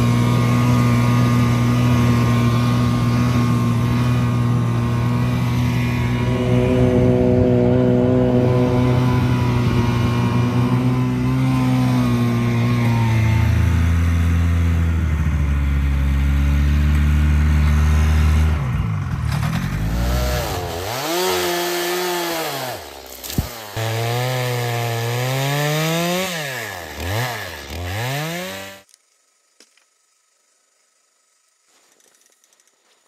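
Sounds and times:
snowmobile engine running: 0.0s - 24.4s
chainsaw cutting tree trunk: 0.0s - 28.9s.

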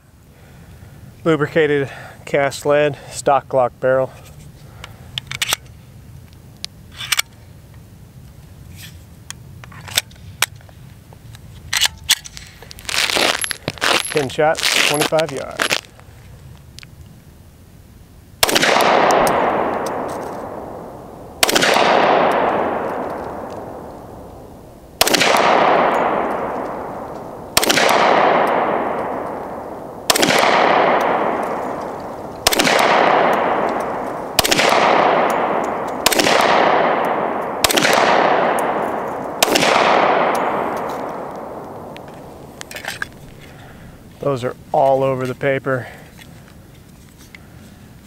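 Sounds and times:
pistol shots with echo: 18.4s - 42.6s.

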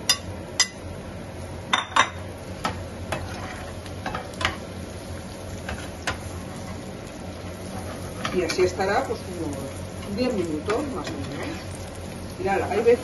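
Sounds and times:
vegetables sizzling in oil: 0.0s - 13.0s
spatula scraping frying pan: 3.1s - 4.7s, 5.6s - 6.9s, 7.5s - 8.8s, 9.9s - 12.0s.

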